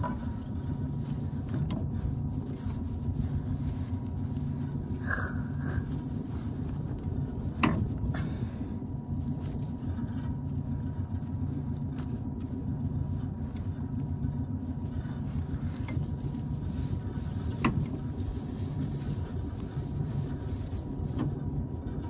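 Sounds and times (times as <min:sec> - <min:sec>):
faint steady whine: 0:00.0 - 0:22.0
tractor engine idling: 0:00.0 - 0:22.0.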